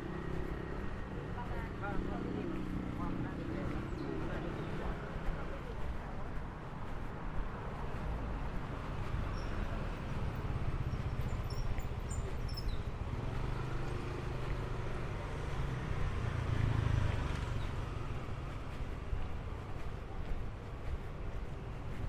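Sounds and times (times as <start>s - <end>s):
low traffic rumble: 0.0s - 22.0s
vehicle passing close by: 12.9s - 19.0s.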